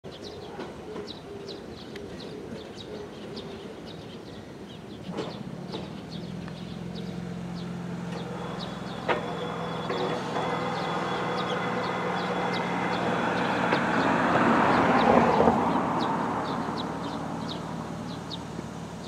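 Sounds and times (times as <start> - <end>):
electric train hum: 5.4 - 19.0.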